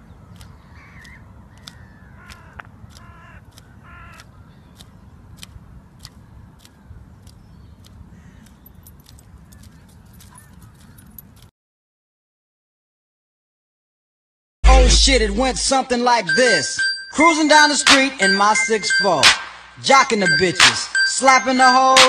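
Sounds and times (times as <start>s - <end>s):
bird calls: 0.0s - 11.2s
sharp clicks: 0.3s - 11.5s, 17.8s - 21.4s
steady low rumble: 14.6s - 15.9s.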